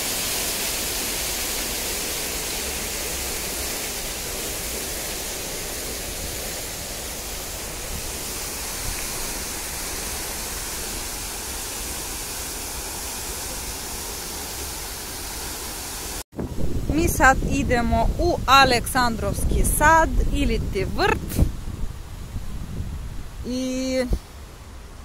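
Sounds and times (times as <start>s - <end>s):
fountain water splashing: 0.0s - 16.2s.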